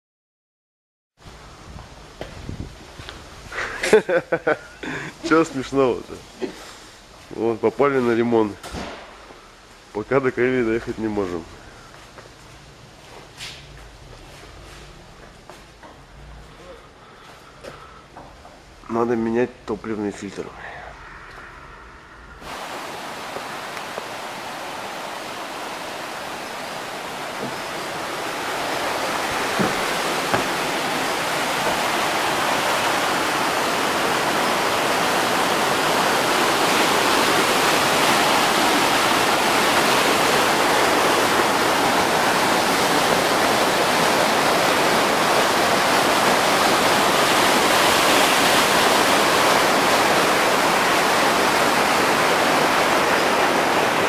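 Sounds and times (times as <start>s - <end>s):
water rushing over rocks: 22.4s - 54.0s.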